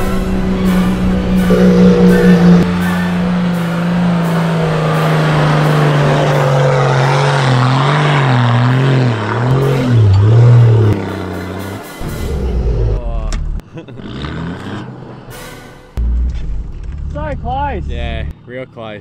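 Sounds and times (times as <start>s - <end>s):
engine revving under load: 0.0s - 13.1s.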